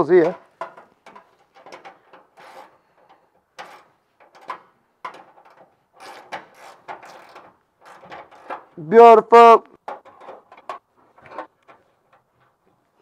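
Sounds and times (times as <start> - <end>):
metal tool clicking and scraping: 0.2 - 8.8.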